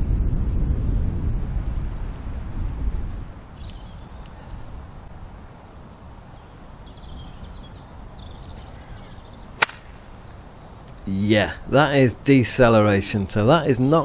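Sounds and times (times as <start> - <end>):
wind rumble on microphone: 0.0 - 11.8
high bird chirps: 3.6 - 4.9, 6.2 - 11.2.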